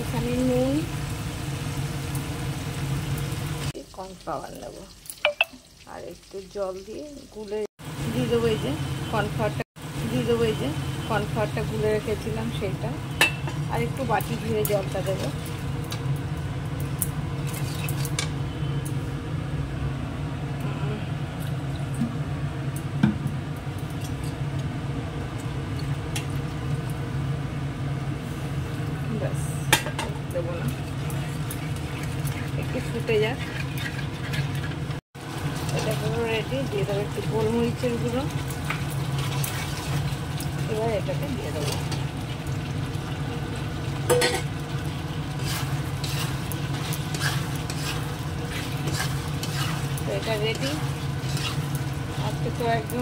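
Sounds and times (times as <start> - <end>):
low kitchen hum: 0.0 - 53.0
sauce sizzling: 0.0 - 53.0
metal bowl knocking on pan: 5.2 - 5.6, 13.2 - 13.6, 44.1 - 44.5
spatula scraping a pan: 30.9 - 34.9, 38.7 - 40.2, 45.4 - 52.5.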